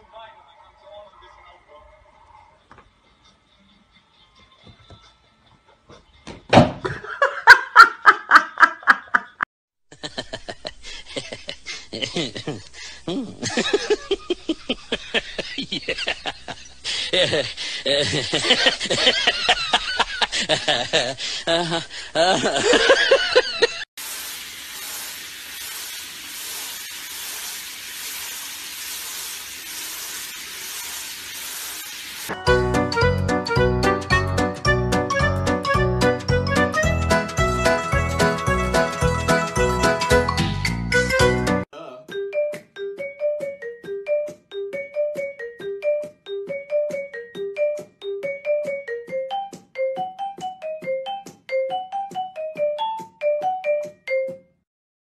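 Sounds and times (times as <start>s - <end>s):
person laughing loudly: 6.8s - 23.9s
shower head spraying water: 22.4s - 32.4s.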